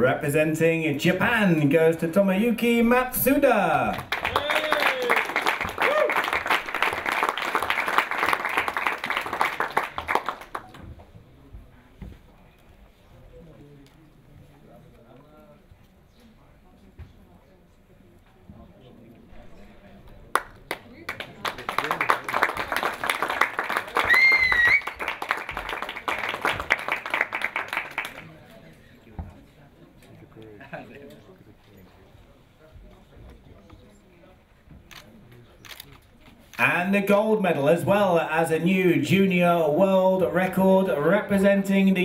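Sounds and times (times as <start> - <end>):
audience applauding: 3.8 - 10.8, 20.3 - 28.4.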